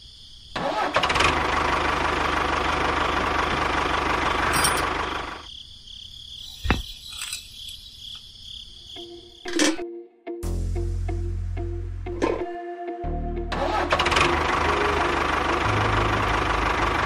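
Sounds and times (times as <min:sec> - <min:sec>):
tractor engine running: 0:00.6 - 0:05.5, 0:13.5 - 0:17.0.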